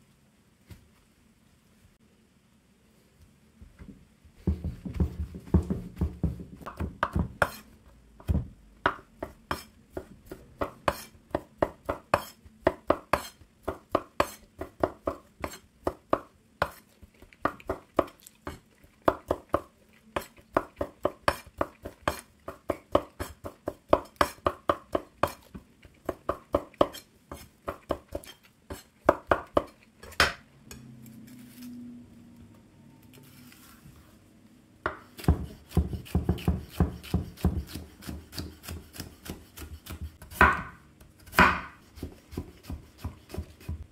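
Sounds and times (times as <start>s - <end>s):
knife chopping on wooden board: 4.5s - 7.6s, 8.2s - 16.8s, 34.9s - 43.9s.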